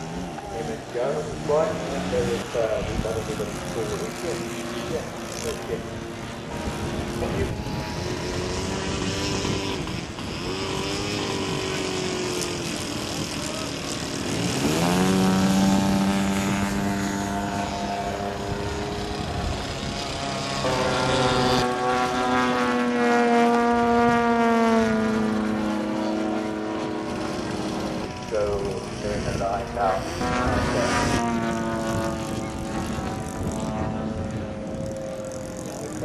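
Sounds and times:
model plane motor and propeller: 0:00.0 - 0:36.0.

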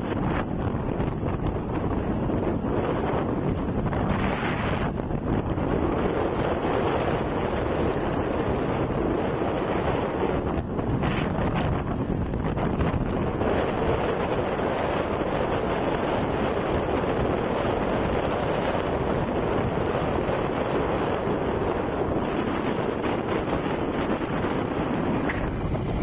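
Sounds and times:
road noise: 0:00.0 - 0:26.0
wind buffeting microphone: 0:00.0 - 0:26.0.

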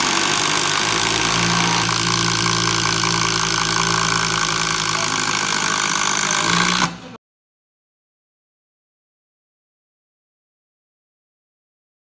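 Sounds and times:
cordless driver driving screws into wood: 0:00.0 - 0:07.1.

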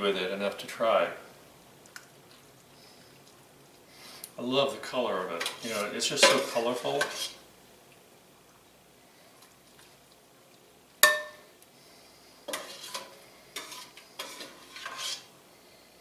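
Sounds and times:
ladle scraping through sauce: 0:05.4 - 0:07.4, 0:12.4 - 0:15.3
metal ladle clinking on pot: 0:06.2 - 0:07.2, 0:11.0 - 0:11.5.

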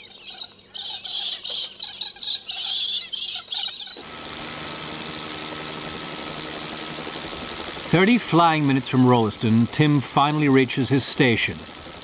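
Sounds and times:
birds chirping and squawking: 0:00.0 - 0:04.0
helicopter engine and rotor: 0:04.0 - 0:12.0.

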